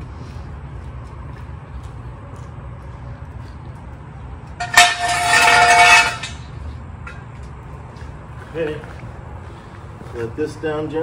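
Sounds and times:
metallic scrape with ringing: 4.6 - 6.5.

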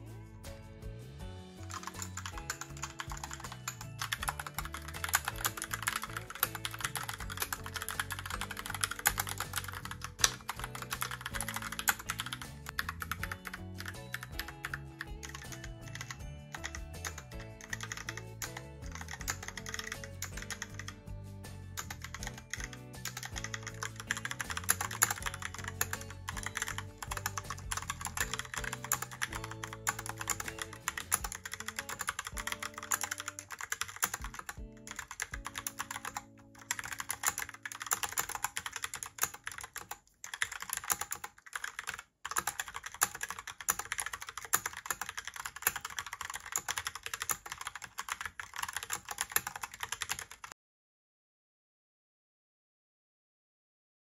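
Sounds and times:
fast typing on mechanical keyboard: 1.7 - 20.9, 21.8 - 50.6.

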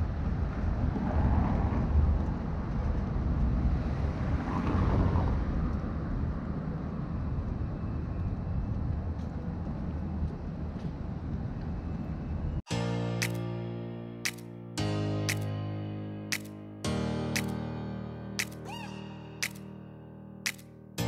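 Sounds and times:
low rumble of traffic: 0.0 - 12.6.

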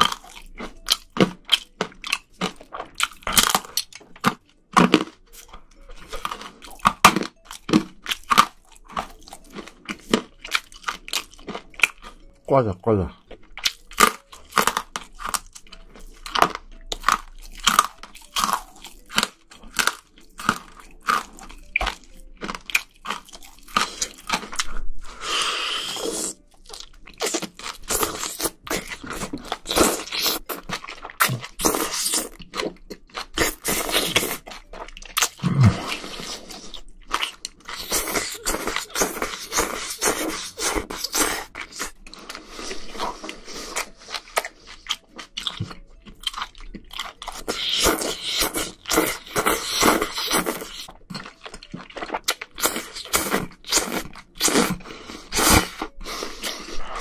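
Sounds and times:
person chewing with crunches: 0.0 - 57.0
noodles slurped: 51.8 - 57.0.

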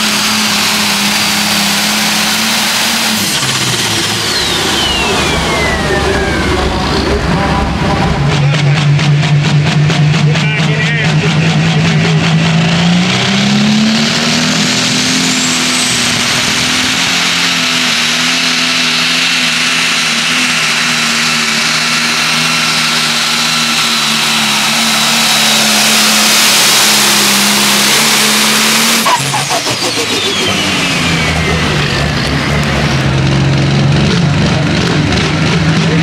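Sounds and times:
diesel engine at full throttle: 0.0 - 36.0
high whine falling in pitch: 3.1 - 9.5.

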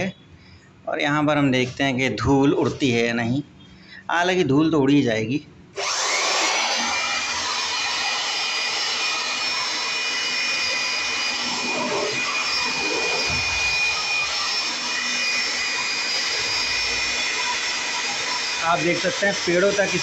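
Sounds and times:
electric blower whining: 5.8 - 20.0.

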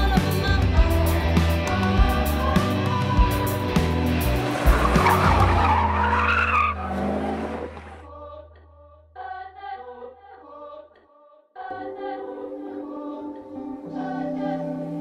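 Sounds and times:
choir-like background music: 0.0 - 6.0, 7.4 - 15.0.

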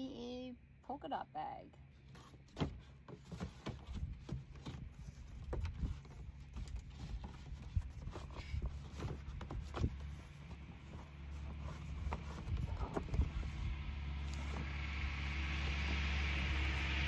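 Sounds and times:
low steady rumble: 0.0 - 17.0.

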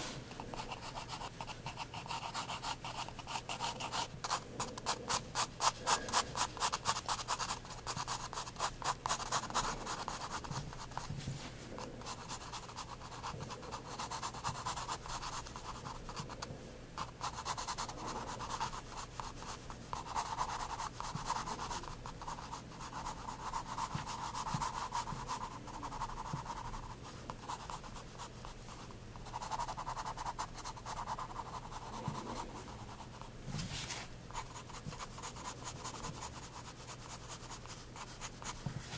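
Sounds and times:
pencil scratching on paper: 0.0 - 11.2, 11.8 - 16.4, 17.0 - 28.6, 29.2 - 38.9.

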